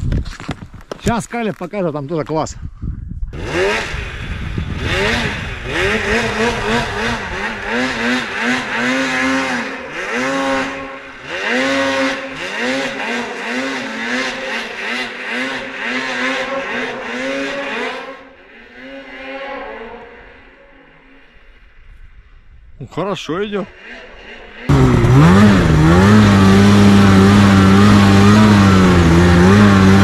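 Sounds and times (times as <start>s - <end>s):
snowmobile engine revving: 3.3s - 21.6s, 23.2s - 30.0s.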